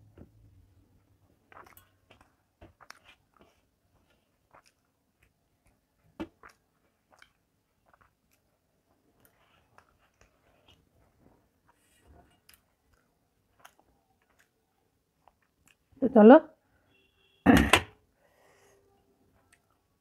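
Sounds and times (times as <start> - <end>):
chewing: 1.4 - 10.9, 11.7 - 15.9.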